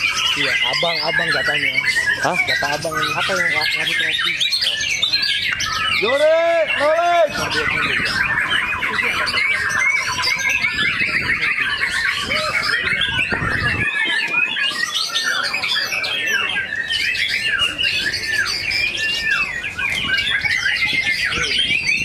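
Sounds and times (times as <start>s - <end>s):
other birds singing: 0.0s - 22.0s
songbird singing varied song: 0.0s - 22.0s.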